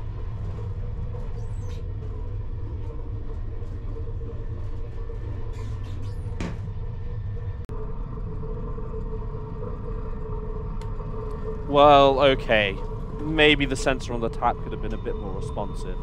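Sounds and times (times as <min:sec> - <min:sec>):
train rumble from inside: 0:00.0 - 0:16.0.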